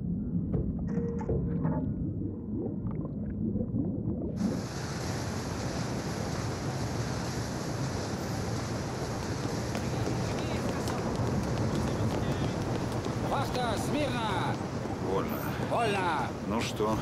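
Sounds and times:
muffled underwater rumble: 0.0 - 6.6.

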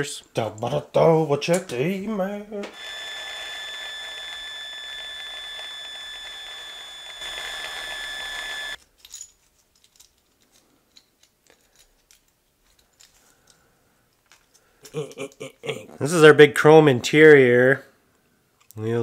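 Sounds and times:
small electric drill whining: 2.7 - 8.8
faint clicks of handling metal: 8.8 - 15.4.

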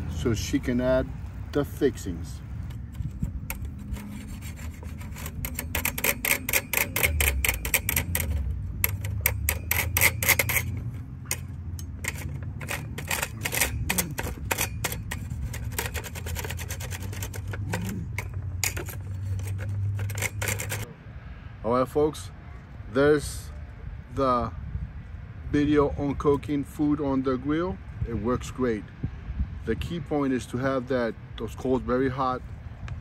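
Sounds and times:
metal spatula scraping wire grate: 1.8 - 20.9.

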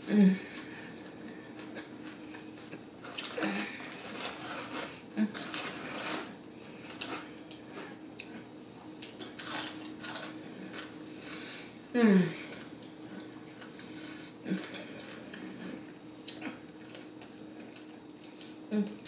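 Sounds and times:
faint room hum: 0.0 - 19.0
food handling clicks and rustles: 0.4 - 8.4, 12.5 - 19.0
person chewing food: 0.6 - 11.0, 12.5 - 19.0.

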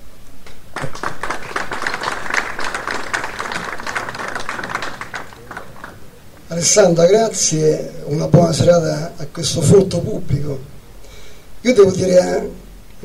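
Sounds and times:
audience applauding: 0.7 - 6.8.

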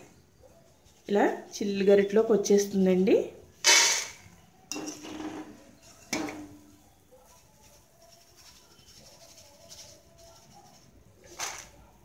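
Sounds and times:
metal ladle knocking on metal pan: 4.7 - 5.5, 6.1 - 6.6.

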